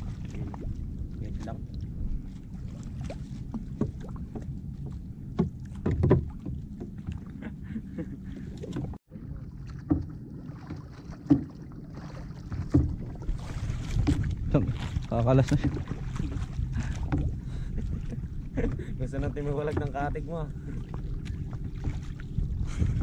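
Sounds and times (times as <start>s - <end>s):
low rumble of water and wind: 0.0s - 23.0s
knocks against boat hull: 5.3s - 7.0s.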